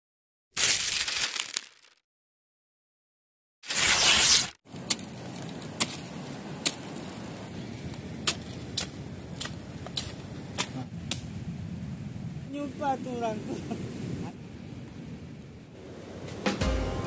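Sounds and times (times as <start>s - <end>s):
machete chopping plant: 3.6s - 5.1s, 8.2s - 11.2s.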